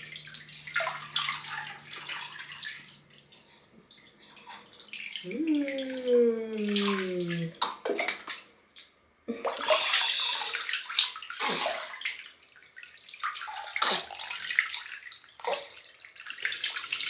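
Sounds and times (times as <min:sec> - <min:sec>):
water pouring and splashing: 0:00.0 - 0:08.5, 0:09.4 - 0:17.0.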